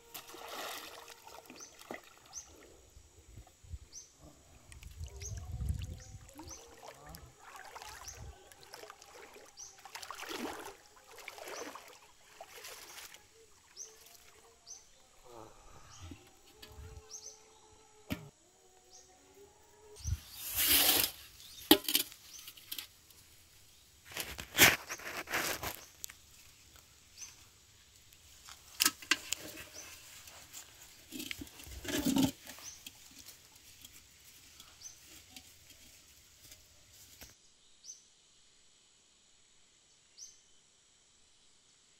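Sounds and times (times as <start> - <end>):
water splashing: 0.0 - 2.5, 5.0 - 14.5.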